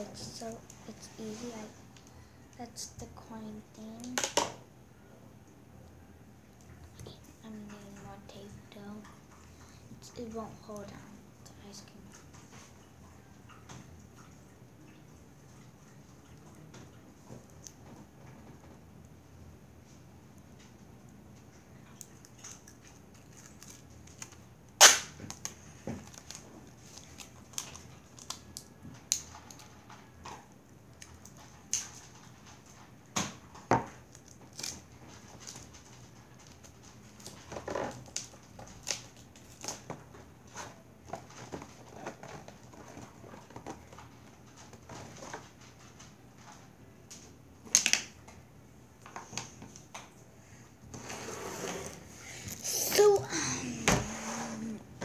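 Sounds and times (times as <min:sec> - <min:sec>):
sharp tape snaps: 0:23.6 - 0:25.6.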